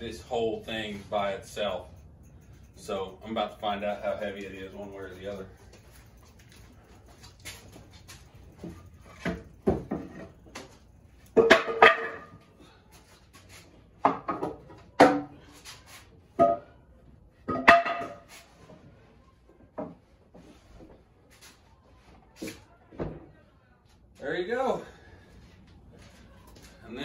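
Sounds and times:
wooden knocks and creaks: 0:08.6 - 0:10.8.

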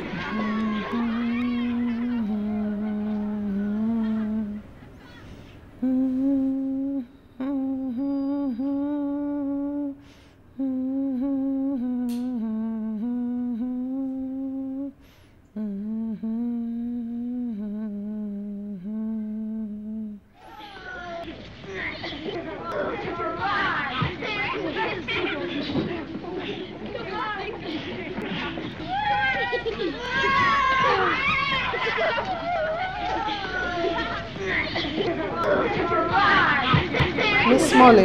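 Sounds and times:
woman humming: 0:00.0 - 0:04.8, 0:05.8 - 0:20.8, 0:37.4 - 0:38.0.

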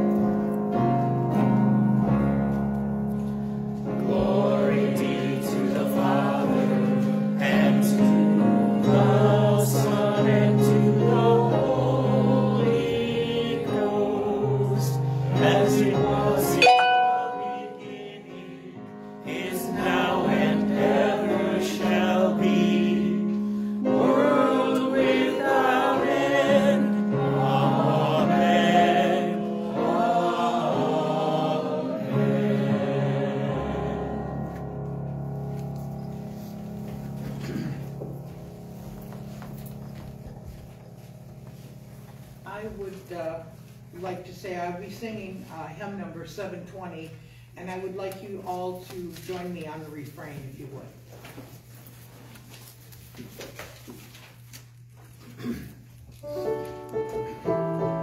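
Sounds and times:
keyboard accompaniment: 0:00.0 - 0:42.4, 0:56.2 - 0:58.0
person singing: 0:13.6 - 0:18.7.

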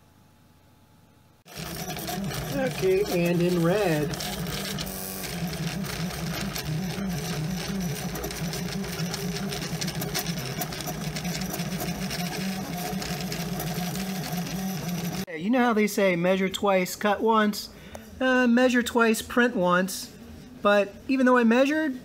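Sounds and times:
stepper motors whirring: 0:01.5 - 0:15.3.

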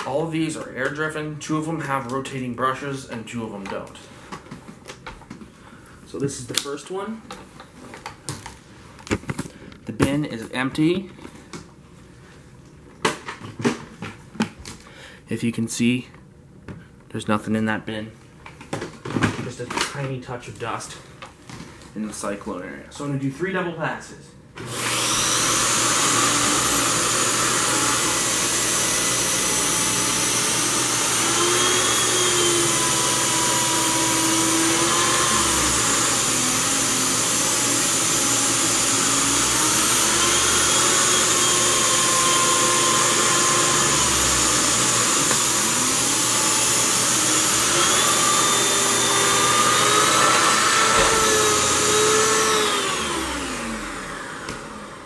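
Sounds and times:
vacuum cleaner whining: 0:24.6 - 0:55.0
vacuum winding down: 0:24.6 - 0:55.0.

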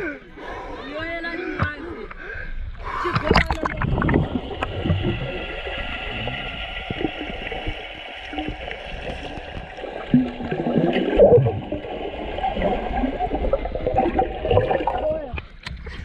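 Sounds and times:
muffled wavering underwater sounds: 0:02.8 - 0:16.0
underwater gurgling and bubbling: 0:03.1 - 0:15.6.

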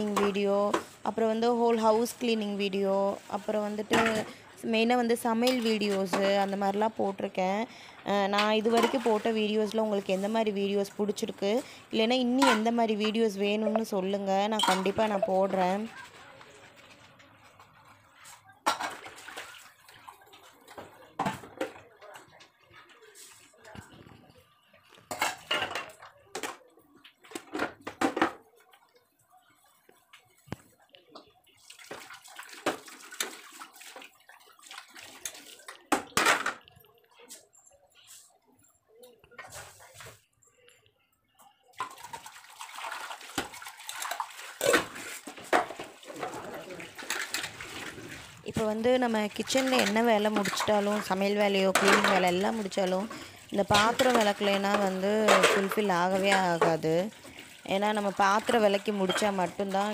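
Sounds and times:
utensils clattering in sink: 0:00.0 - 0:02.2, 0:03.2 - 0:04.5, 0:05.2 - 0:07.2, 0:08.0 - 0:23.8, 0:25.0 - 0:28.7, 0:31.8 - 0:36.8, 0:41.8 - 0:59.9
water running in sink: 0:08.1 - 0:11.6, 0:12.4 - 0:25.5, 0:28.4 - 0:36.6, 0:41.8 - 0:59.9
dishes scrubbing: 0:08.3 - 0:23.5, 0:41.8 - 0:59.9.

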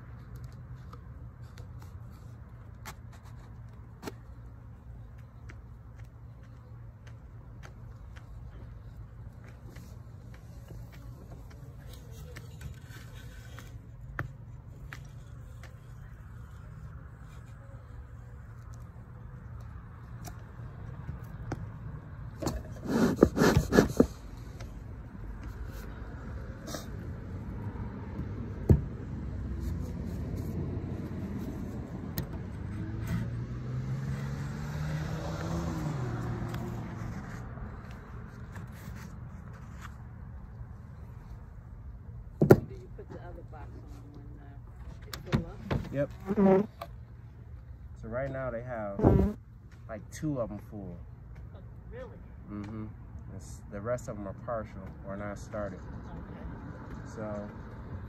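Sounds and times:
low traffic rumble: 0:00.0 - 0:58.0
passing car engine: 0:26.1 - 0:38.0.

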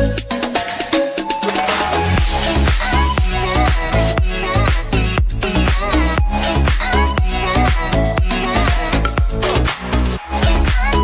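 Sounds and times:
electronic dance music beat: 0:00.0 - 0:11.0.

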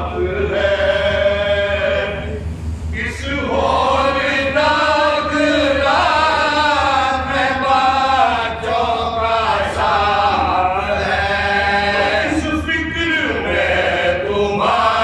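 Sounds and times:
men chanting into a microphone: 0:00.0 - 0:15.0.

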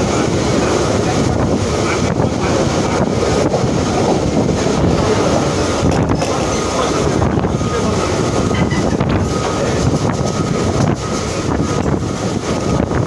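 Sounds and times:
train rumbling: 0:00.0 - 0:13.0
wind buffeting microphone: 0:00.0 - 0:13.0.

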